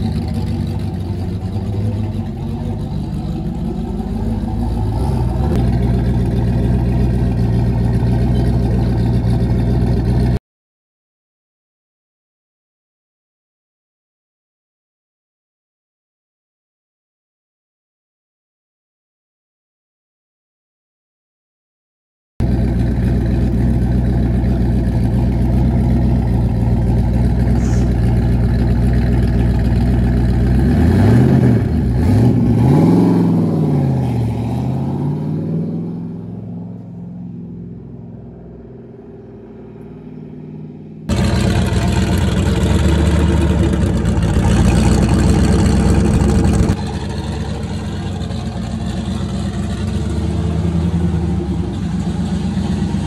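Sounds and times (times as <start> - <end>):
car engine idling and revving: 0.0 - 10.4, 22.4 - 53.0.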